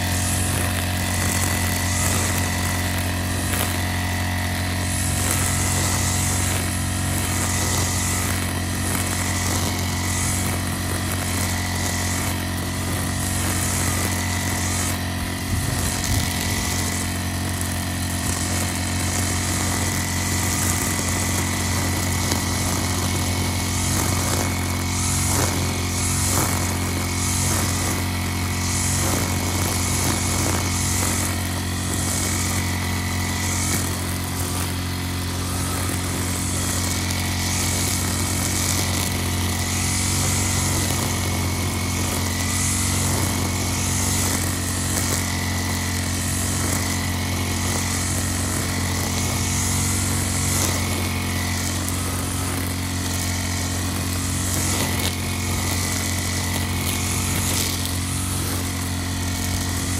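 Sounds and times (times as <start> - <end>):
brush cutter engine drone: 0.0 - 59.9
cutting head hissing through grass: 0.0 - 59.9.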